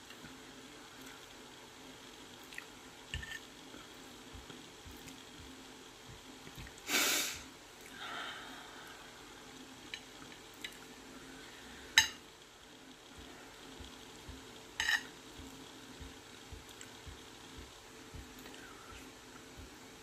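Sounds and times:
steady low hum: 0.0s - 20.0s
person eating: 2.4s - 4.0s
sniff: 6.9s - 7.4s
metal fork clicking on plate: 14.8s - 15.1s.

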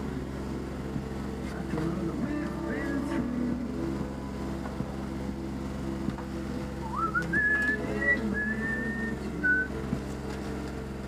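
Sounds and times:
steady low hum: 0.0s - 11.0s
person whistling a tune: 6.8s - 9.8s.

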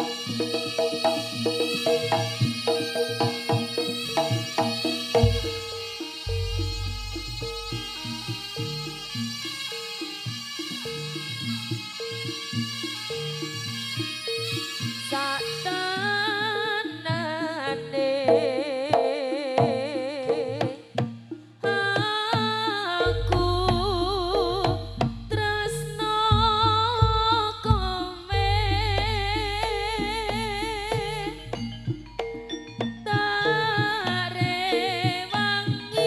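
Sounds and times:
wavering lead melody with vibrato: 0.0s - 19.5s, 22.9s - 36.0s
drum strokes: 0.0s - 36.0s
deep bass: 5.2s - 9.2s, 23.1s - 33.0s.

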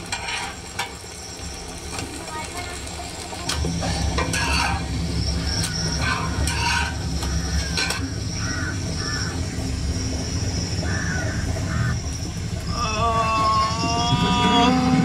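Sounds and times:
metal utensil scraping griddle: 0.0s - 1.0s, 3.4s - 8.2s
thin high tone: 12.6s - 15.0s.

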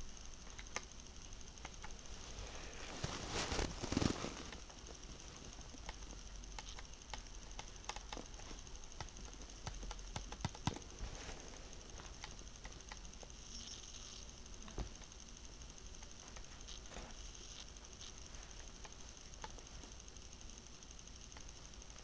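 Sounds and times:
low steady hum: 0.0s - 22.0s
typing taps on handheld device: 5.8s - 10.9s.

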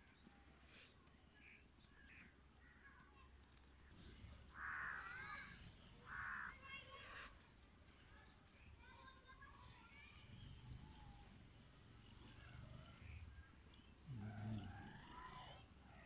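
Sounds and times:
faint bird chirps: 0.0s - 16.0s
crow cawing: 4.6s - 5.2s, 6.1s - 7.2s.

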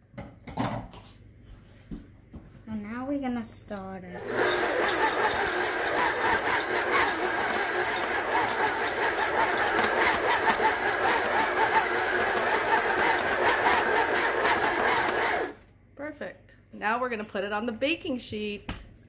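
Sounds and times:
stand mixer running: 4.2s - 15.6s.

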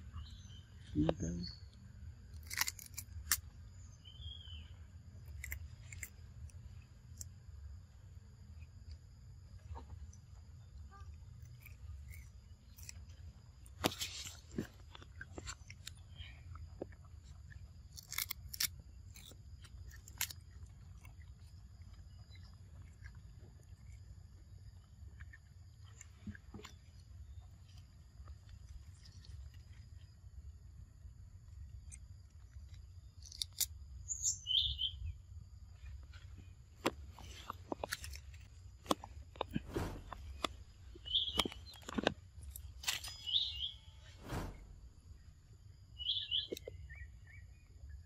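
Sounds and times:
small bird chirping: 0.0s - 1.8s, 2.4s - 7.3s, 9.5s - 24.1s, 32.7s - 35.2s, 39.6s - 48.0s
monkeys crunching cucumber: 2.2s - 3.6s, 5.2s - 7.8s, 11.0s - 30.0s, 32.7s - 33.7s, 36.8s - 43.3s.

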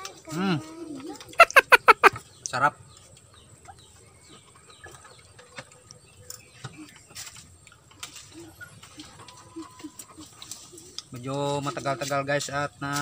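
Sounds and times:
bird calling softly: 3.7s - 11.1s.

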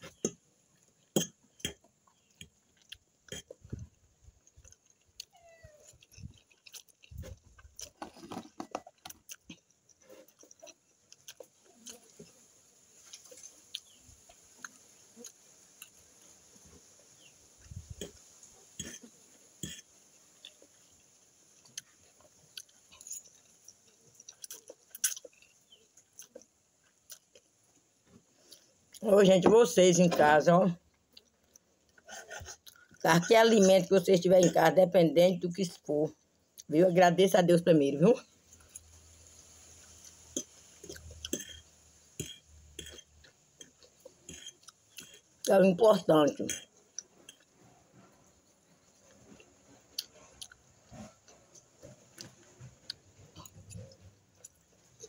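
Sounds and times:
wet chewing and slurping: 0.0s - 29.0s, 30.9s - 33.7s, 38.4s - 45.5s, 46.5s - 55.0s
mouth smacks and clicks: 42.2s - 45.2s.

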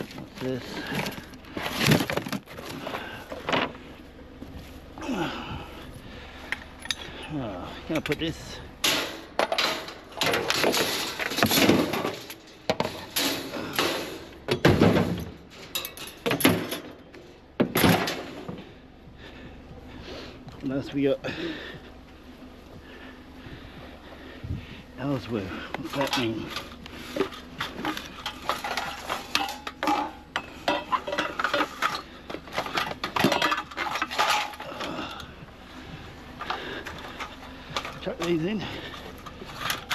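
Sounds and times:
scrap metal clanking against wire mesh: 8.0s - 17.0s, 25.8s - 35.3s.

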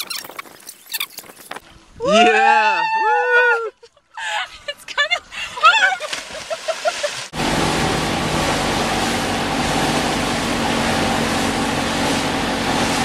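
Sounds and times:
wind: 0.0s - 13.0s
rushing wake water: 5.3s - 13.0s
water splash: 6.0s - 13.0s
outboard motor running: 7.4s - 13.0s.

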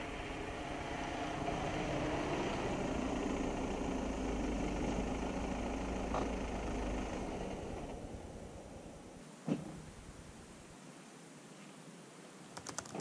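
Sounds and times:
car engine running slowly: 0.0s - 9.2s.

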